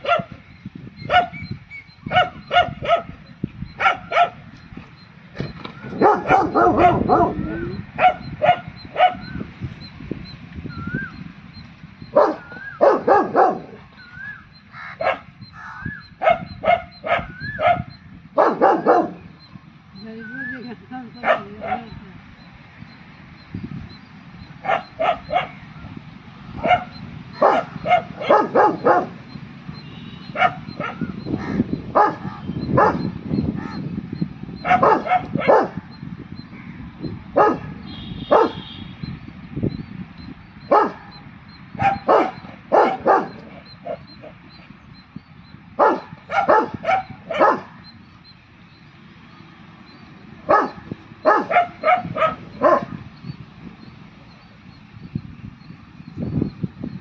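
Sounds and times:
dog barking: 0:00.0 - 0:00.4, 0:01.1 - 0:01.4, 0:02.1 - 0:03.2, 0:03.8 - 0:04.4, 0:05.9 - 0:09.3, 0:12.1 - 0:13.8, 0:15.0 - 0:15.3, 0:16.2 - 0:19.3, 0:21.2 - 0:22.0, 0:24.6 - 0:25.6, 0:26.6 - 0:29.2, 0:30.2 - 0:33.1, 0:34.6 - 0:35.9, 0:37.4 - 0:38.6, 0:40.6 - 0:41.2, 0:41.8 - 0:44.4, 0:45.8 - 0:47.9, 0:50.4 - 0:53.0.

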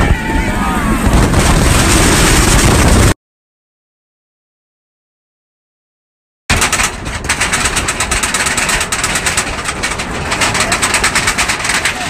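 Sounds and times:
roller coaster clattering on track: 0:06.5 - 0:12.0.

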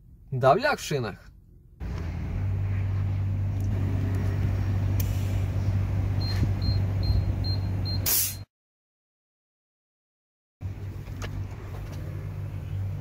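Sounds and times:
air hiss: 0:08.1 - 0:08.5.

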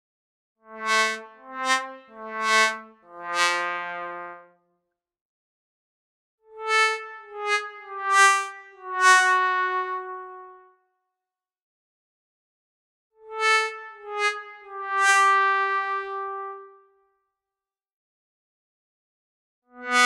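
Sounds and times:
sad trombone wah-wah: 0:19.8 - 0:20.0.

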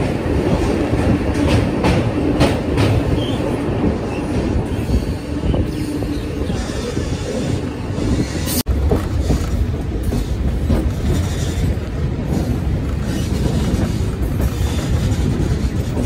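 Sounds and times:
clacks over rail joints: 0:00.0 - 0:04.6, 0:08.6 - 0:16.0
rumble of train wheels on rails: 0:00.0 - 0:16.0.

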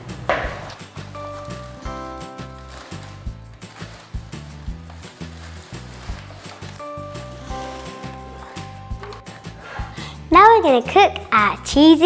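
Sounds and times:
background music with bass: 0:00.0 - 0:12.0
chiming notes: 0:01.2 - 0:03.3, 0:06.8 - 0:10.0.

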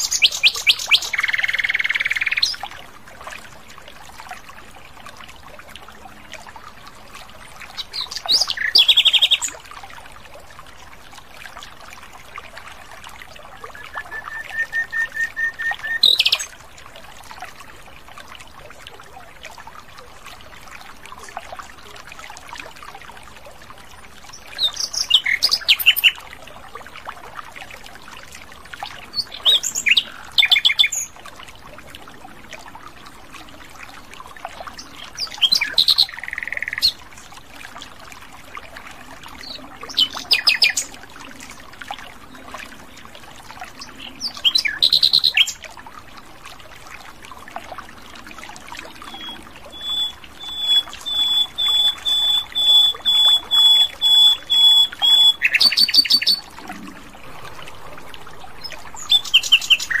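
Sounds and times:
nightingale singing: 0:13.8 - 0:16.5, 0:49.1 - 0:56.4.

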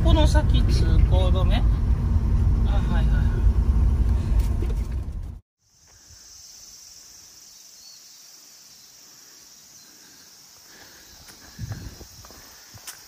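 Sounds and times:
high-pitched insect chorus: 0:05.6 - 0:13.0.

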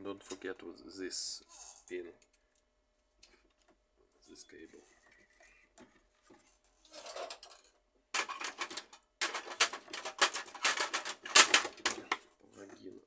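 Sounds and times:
soft rustle: 0:03.3 - 0:07.3
plastic clattering and clicking: 0:05.8 - 0:12.3.

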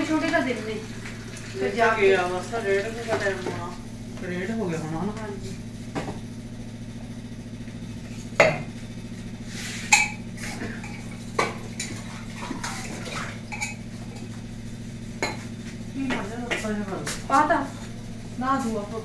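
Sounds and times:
steady low hum: 0:00.0 - 0:19.0
steel utensils clinking: 0:13.5 - 0:13.9.

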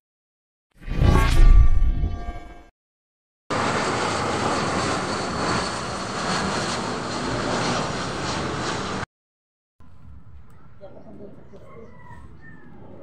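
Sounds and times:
jet engine roar: 0:03.5 - 0:09.1.

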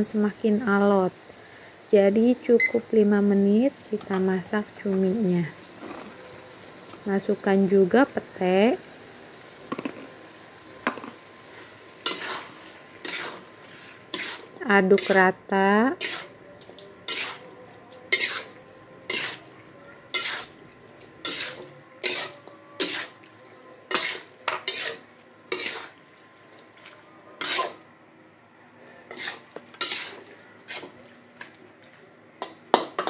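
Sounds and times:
metal spatula scraping a wok: 0:12.0 - 0:16.4, 0:17.0 - 0:20.6, 0:21.2 - 0:23.2, 0:23.9 - 0:26.0, 0:27.4 - 0:27.8, 0:28.8 - 0:31.0.

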